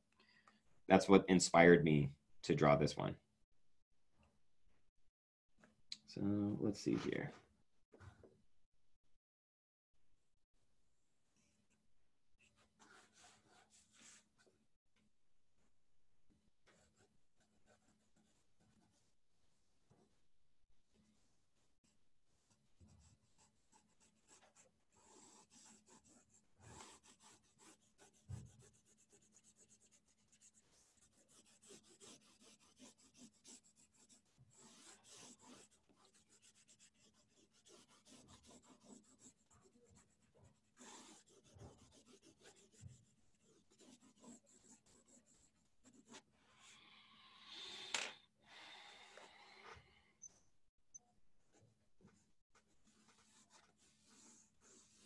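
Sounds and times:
pen scratching on paper: 12.4 - 14.6, 16.7 - 19.1, 21.0 - 46.8, 51.5 - 55.0.

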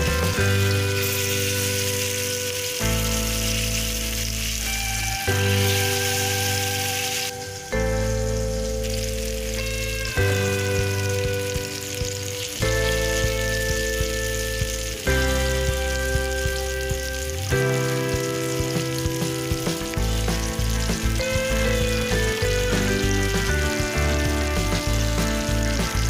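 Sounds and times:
background music of held notes: 0.0 - 26.0
fish sizzling in oil: 0.0 - 26.0.

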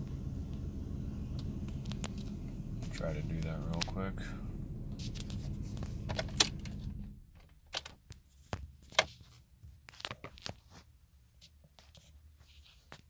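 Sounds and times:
pickup engine rumbling: 0.0 - 7.7
ignition switch click: 6.0 - 7.2.

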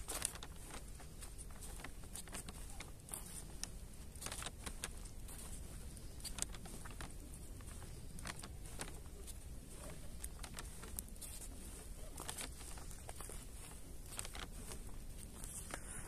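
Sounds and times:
footsteps on forest floor: 0.0 - 16.0.

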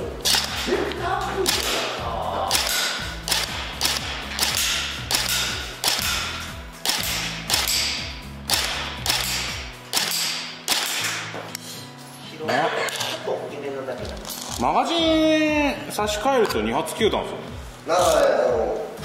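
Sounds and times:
airsoft rifle single shots: 2.5 - 11.3.

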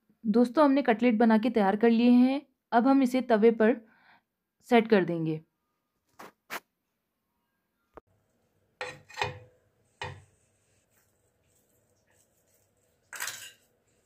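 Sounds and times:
spoon knocking on pan: 8.8 - 10.3
spoon scraping pan: 8.8 - 14.0.

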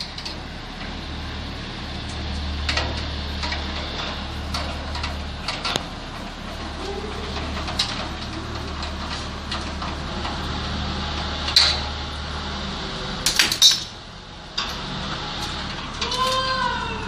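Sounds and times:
steady background hum: 0.0 - 17.0
clicks and metal knocks: 13.2 - 14.0.

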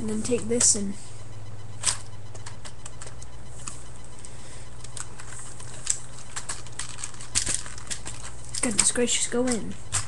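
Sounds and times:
steady low hum: 0.0 - 10.0
plastic toy parts clicking: 5.7 - 10.0.

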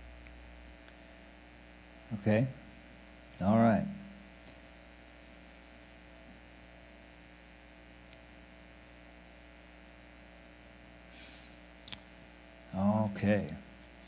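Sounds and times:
faint electrical mains hum: 0.0 - 14.0.

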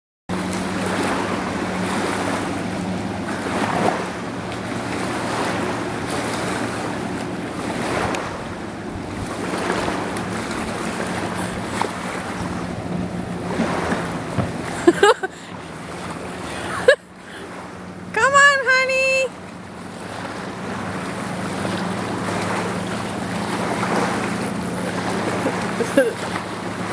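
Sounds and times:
motorboat engine humming: 0.3 - 26.9
wind on microphone: 0.5 - 14.8.

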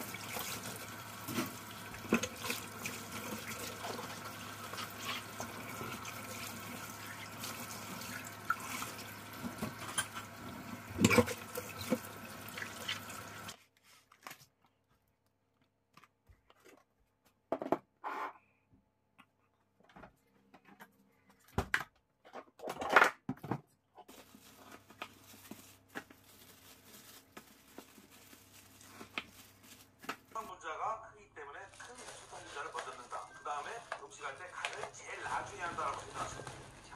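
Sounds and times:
tap water running into sink: 0.0 - 13.5.

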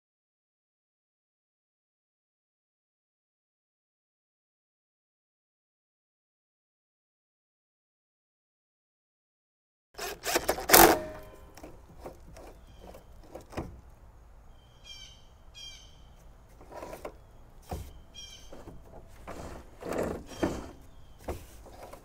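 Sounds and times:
bird chirping: 12.3 - 13.3, 13.9 - 19.0, 20.2 - 22.0.

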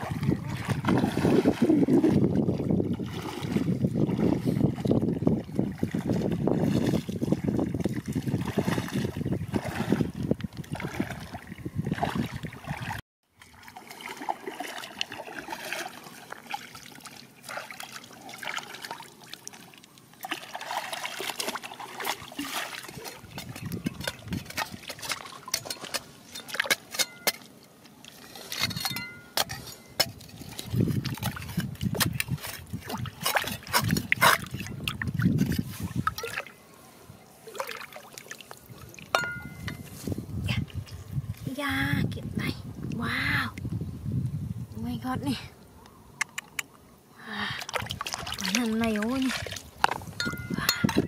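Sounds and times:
water splashing around legs: 0.0 - 27.6, 37.4 - 39.9, 47.5 - 51.0
metal trowel scraping rocks: 23.2 - 30.9
water trickling and dripping: 37.5 - 39.9, 47.4 - 51.0.

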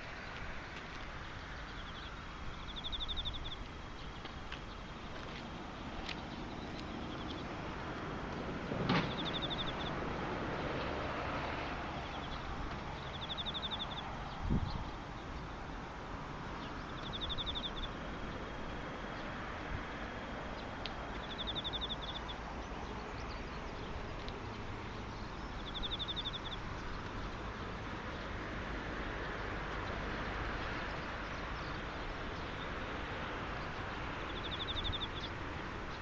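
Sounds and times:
insect trilling: 9.1 - 10.0, 13.0 - 14.2, 16.9 - 18.0, 21.2 - 22.6, 25.5 - 26.7.

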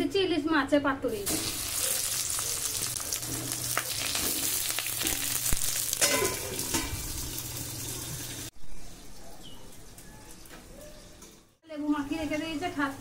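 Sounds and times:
fish frying in oil sizzling: 1.2 - 8.5.

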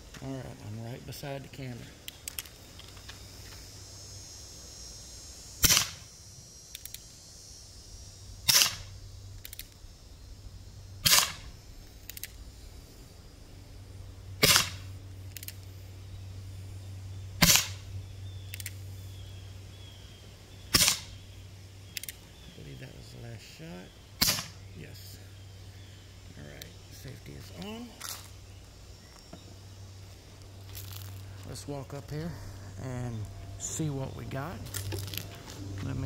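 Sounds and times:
pellet revolver shots: 5.6 - 6.1, 8.4 - 8.9, 11.0 - 11.5, 14.4 - 14.9, 17.4 - 17.9, 20.7 - 21.2, 24.2 - 24.6.

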